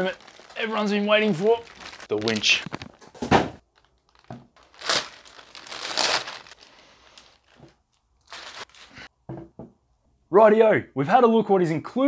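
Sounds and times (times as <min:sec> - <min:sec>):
plastic wrapping crinkling: 0:00.0 - 0:09.1.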